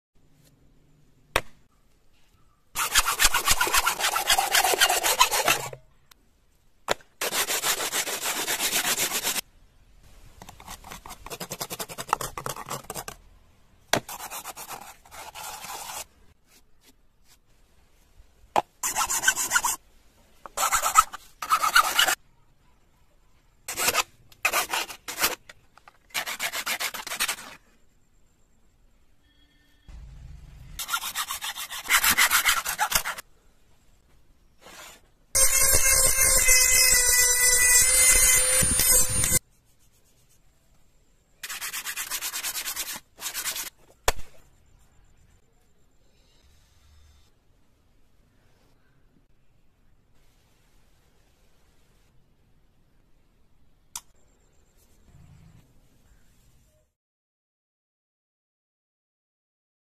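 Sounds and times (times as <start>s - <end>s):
coconut shell scraping: 10.4s - 13.2s.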